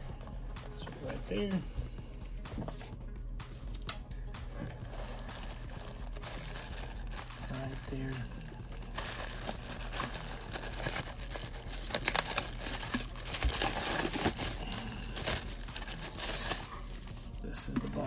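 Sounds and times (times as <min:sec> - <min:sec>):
plastic bag crinkling: 0:04.8 - 0:17.3.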